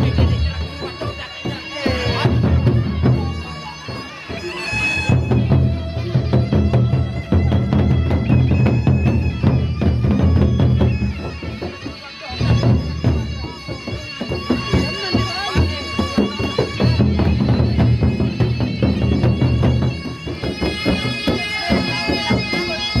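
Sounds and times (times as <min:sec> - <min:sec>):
cymbals: 0:00.0 - 0:23.0
wind instrument melody: 0:00.0 - 0:23.0
barrel drums beaten with sticks: 0:05.0 - 0:23.0.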